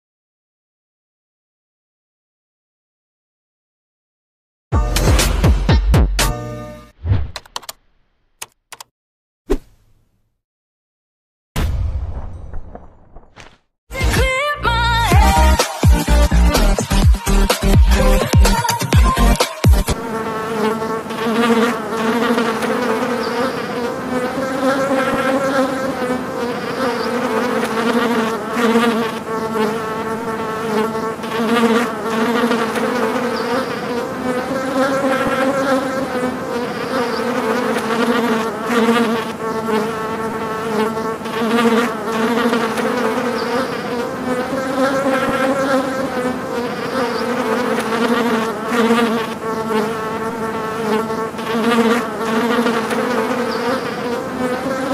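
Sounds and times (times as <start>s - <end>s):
flies buzzing: 15.0s - 54.9s.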